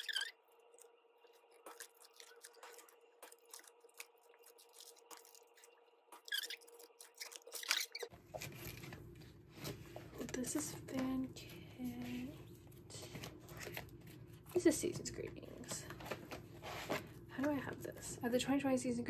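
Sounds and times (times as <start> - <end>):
plastic and paper crinkling: 7.1 - 17.8.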